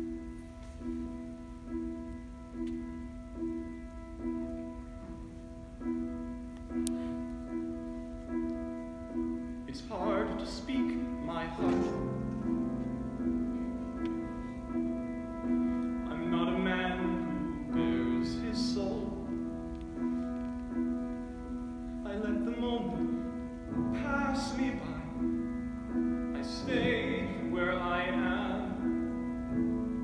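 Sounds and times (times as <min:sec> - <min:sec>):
sustained piano chords: 0:00.0 - 0:30.0
man singing: 0:09.7 - 0:12.1, 0:16.0 - 0:19.6, 0:22.0 - 0:25.4, 0:26.3 - 0:29.1.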